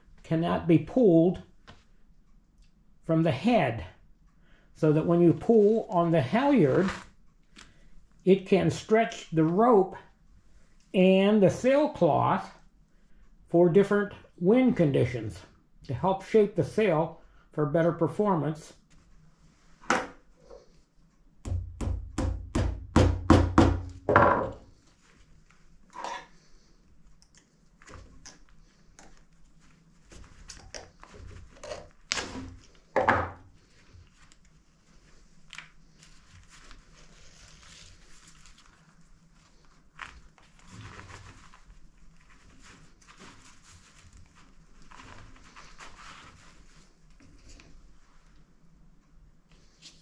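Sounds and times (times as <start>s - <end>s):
sailcloth rustling: 5.2s - 7.7s, 33.5s - 48.6s.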